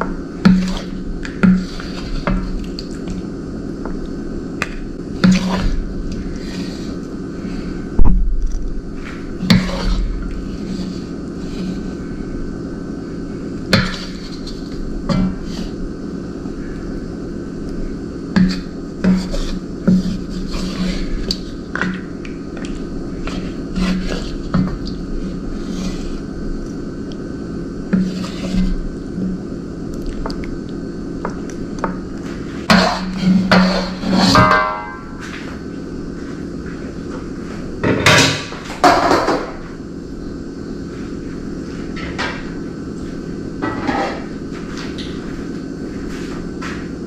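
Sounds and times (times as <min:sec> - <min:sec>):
steady low hum: 0:00.0 - 0:47.0
spoon scraping and knocking a pot: 0:13.8 - 0:15.8, 0:18.4 - 0:22.0, 0:32.7 - 0:35.2.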